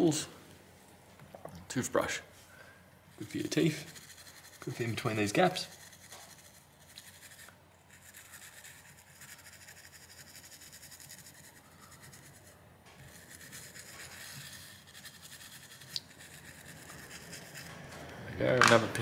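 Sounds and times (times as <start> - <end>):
toothbrush scrubbing: 3.2 - 17.8.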